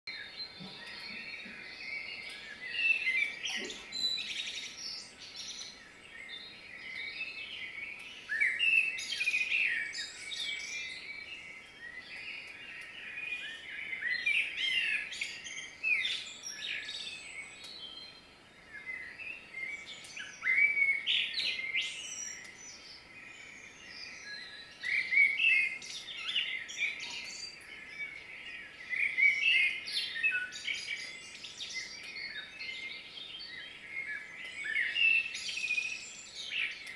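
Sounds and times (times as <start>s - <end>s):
songbirds singing: 0.1s - 36.9s.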